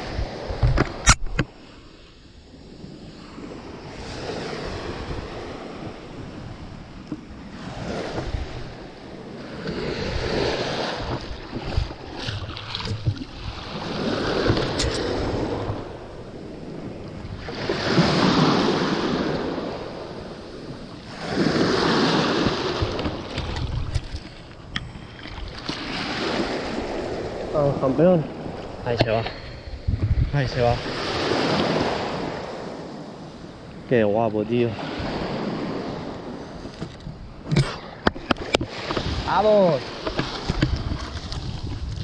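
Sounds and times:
small waves breaking on shore: 0:00.0 - 0:42.0
wind rumbling on microphone: 0:00.0 - 0:42.0.

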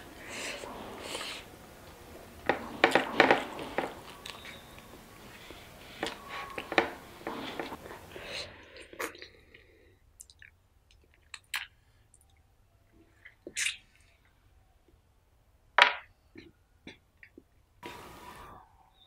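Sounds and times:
wet chewing: 0:00.1 - 0:12.4
lip smacks and mouth clicks: 0:10.2 - 0:12.4, 0:13.2 - 0:14.0.

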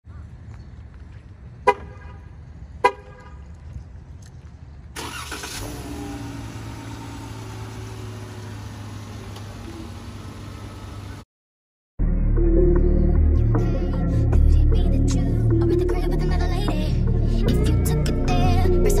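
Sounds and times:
car engine starting and idling: 0:04.9 - 0:11.2.

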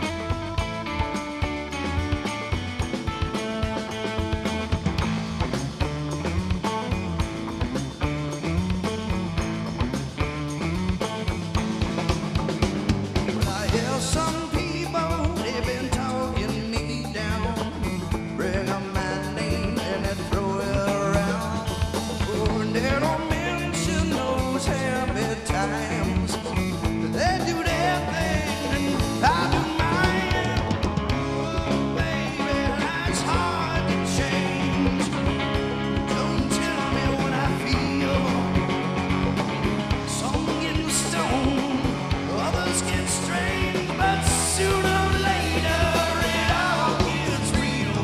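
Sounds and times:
live rock band playing: 0:00.0 - 0:48.0
man singing: 0:13.4 - 0:38.9, 0:39.9 - 0:48.0.

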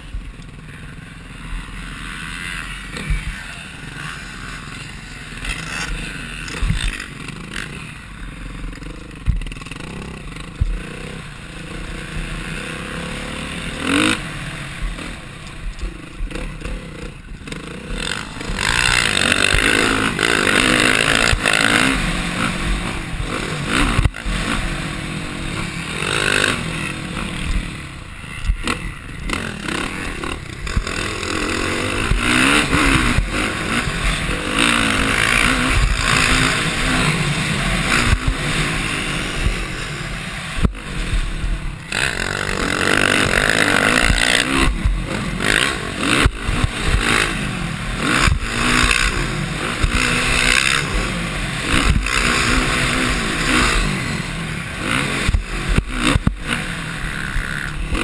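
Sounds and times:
dirt bike engine revving: 0:00.0 - 0:58.0
sharp thumps: 0:51.7 - 0:53.8, 0:55.1 - 0:56.7.

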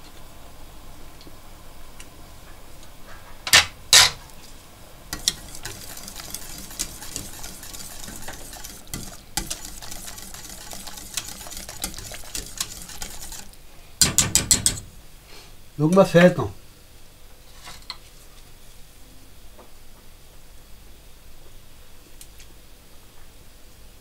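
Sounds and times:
whisk scraping metal pot: 0:05.1 - 0:13.6
sharp knocks: 0:14.0 - 0:14.8.

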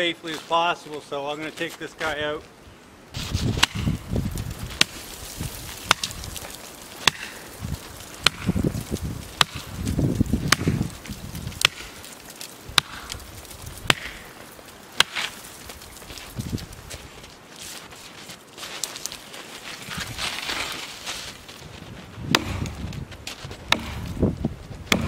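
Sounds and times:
axe chopping tree trunk: 0:03.5 - 0:04.0, 0:04.8 - 0:05.2, 0:05.8 - 0:06.2, 0:07.0 - 0:07.5, 0:08.2 - 0:08.7, 0:09.4 - 0:09.7, 0:10.4 - 0:10.9, 0:11.5 - 0:12.1, 0:12.7 - 0:13.2, 0:13.8 - 0:14.3, 0:15.0 - 0:15.4, 0:22.3 - 0:22.9, 0:23.7 - 0:24.3.

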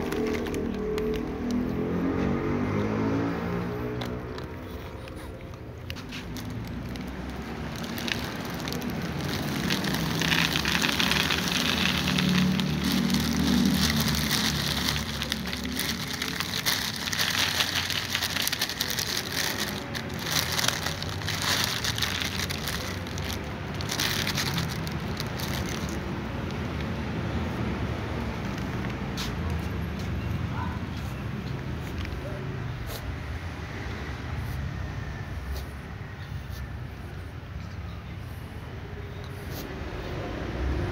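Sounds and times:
plastic bag crinkling: 0:00.0 - 0:02.0, 0:03.8 - 0:26.5.

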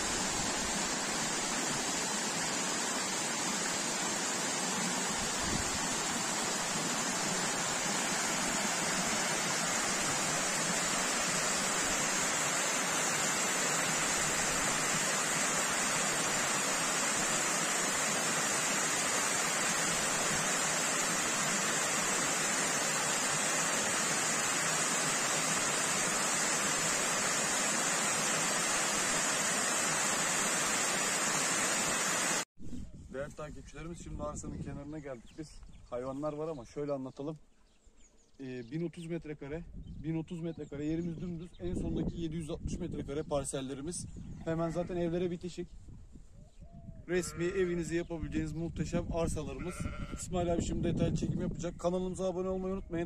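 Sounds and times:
waterfall rushing: 0:00.0 - 0:32.4.

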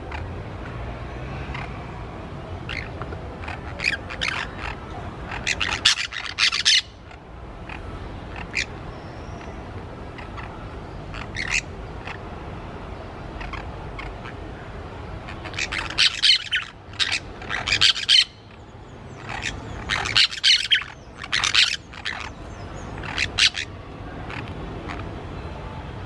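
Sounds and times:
parakeets squawking: 0:02.6 - 0:12.2, 0:13.3 - 0:14.5, 0:15.2 - 0:25.1.

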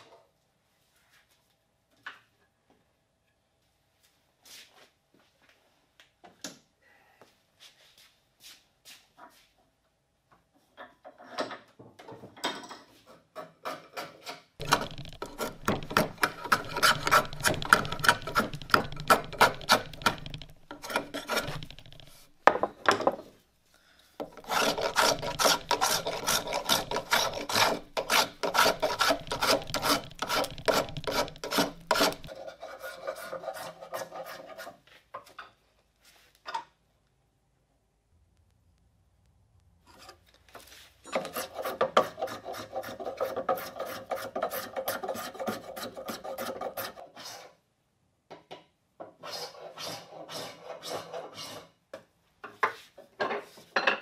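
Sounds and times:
wood rasp scraping: 0:13.7 - 0:22.4, 0:24.2 - 0:34.8, 0:41.1 - 0:47.6, 0:49.2 - 0:51.8.

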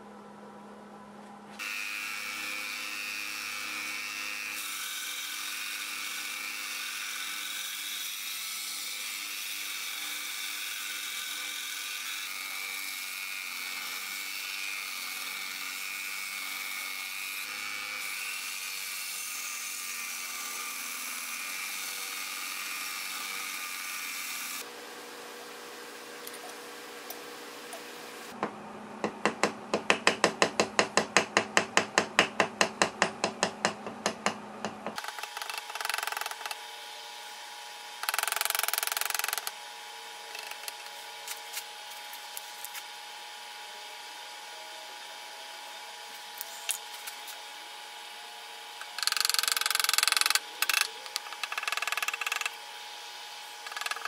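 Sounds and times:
power tool high-pitched whine: 0:01.6 - 0:26.0.

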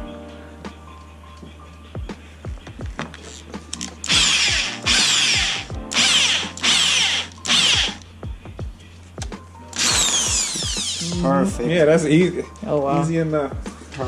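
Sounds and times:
drill bit screeching: 0:04.0 - 0:08.0, 0:09.8 - 0:11.1
electric drill cutting plastic: 0:04.0 - 0:08.0, 0:09.7 - 0:11.1.

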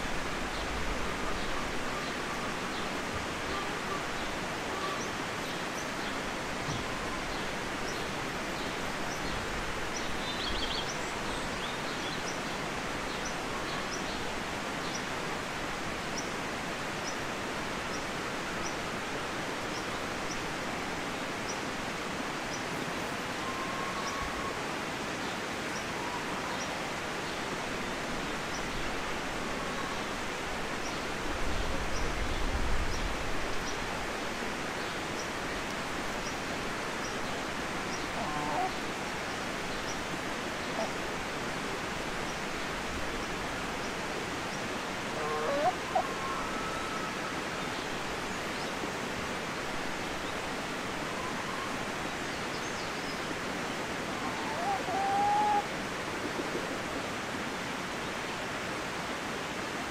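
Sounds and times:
steady hiss: 0:00.0 - 0:59.9
poultry calls: 0:38.0 - 0:38.9, 0:45.1 - 0:47.1, 0:54.2 - 0:55.7.

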